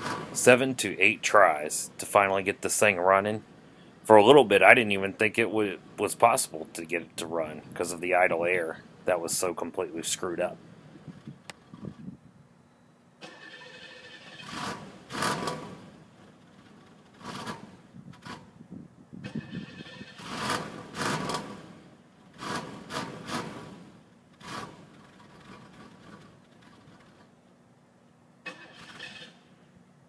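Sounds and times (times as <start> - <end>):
car engine cranking and catching: 0.0 - 1.1, 13.2 - 18.6, 19.2 - 27.4, 28.4 - 29.7.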